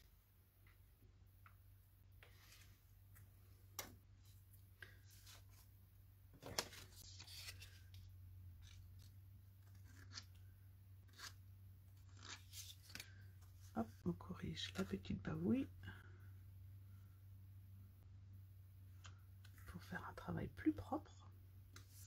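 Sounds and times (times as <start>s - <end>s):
cardstock rustling and clicking: 6.3s - 10.3s.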